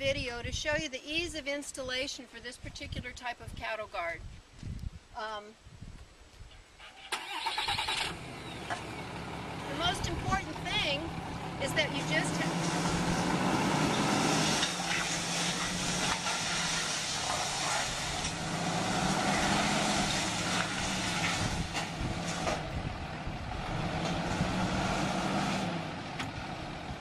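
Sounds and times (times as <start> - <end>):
truck engine running: 7.2 - 27.0
hissing noise: 11.8 - 22.6.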